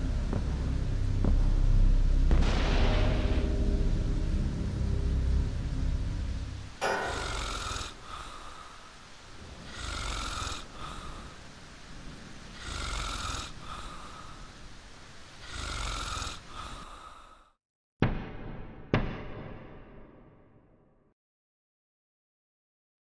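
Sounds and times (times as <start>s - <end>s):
man snoring: 6.8s - 8.8s, 9.4s - 11.4s, 12.5s - 14.6s, 15.4s - 17.6s.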